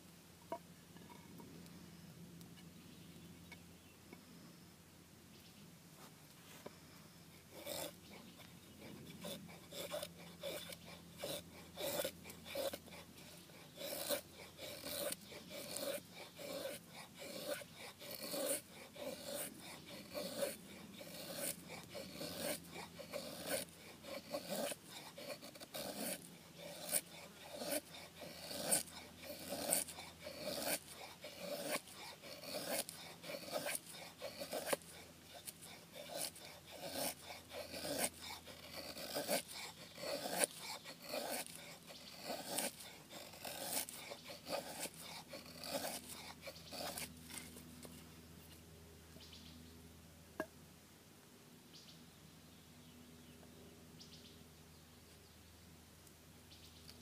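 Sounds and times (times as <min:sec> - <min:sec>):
knife scraping wooden stick: 0:07.3 - 0:48.6.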